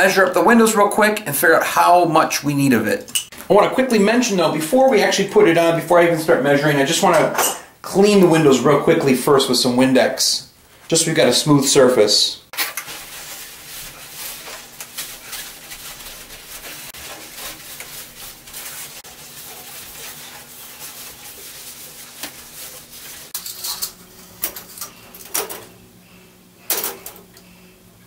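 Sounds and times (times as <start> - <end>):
rubbing and scraping on glass: 12.6 - 24.0.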